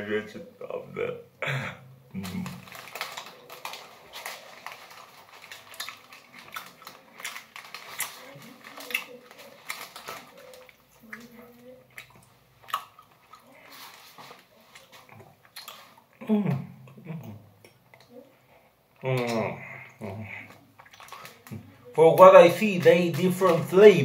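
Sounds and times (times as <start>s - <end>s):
candy bag crinkling: 2.2s - 16.0s, 20.3s - 24.0s.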